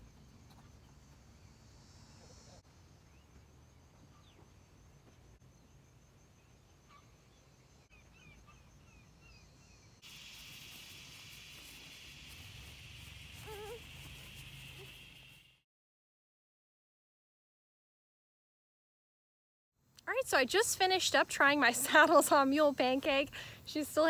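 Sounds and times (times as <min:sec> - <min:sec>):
high insect drone: 0:00.0 - 0:07.9, 0:08.8 - 0:15.6
birds chirping: 0:06.6 - 0:15.6
wavering bird call: 0:13.3 - 0:15.4.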